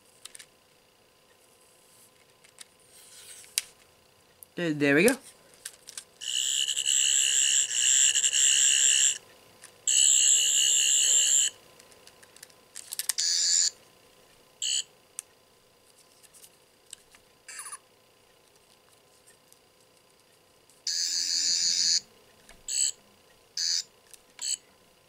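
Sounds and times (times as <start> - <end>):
toy electronic warbling buzz: 6.2 - 9.2, 9.9 - 11.6, 13.2 - 13.8, 14.6 - 14.9, 20.9 - 22.1, 22.7 - 23.0, 23.6 - 24.6.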